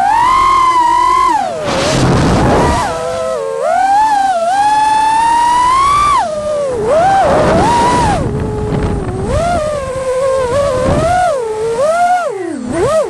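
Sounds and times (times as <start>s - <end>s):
quadcopter motors whining: 0.0s - 13.0s
rush of air: 1.2s - 3.3s, 6.1s - 11.3s.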